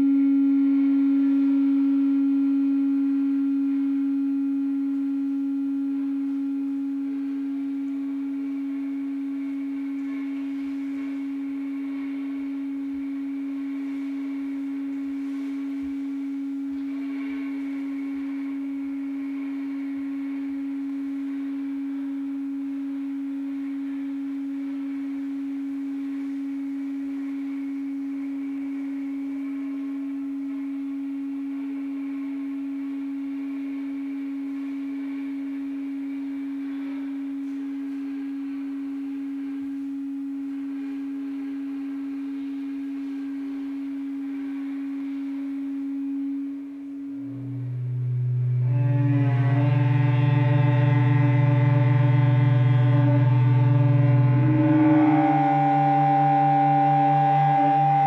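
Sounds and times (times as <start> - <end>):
sustained ensemble drone: 0.0 - 58.0
light hiss: 6.0 - 58.0.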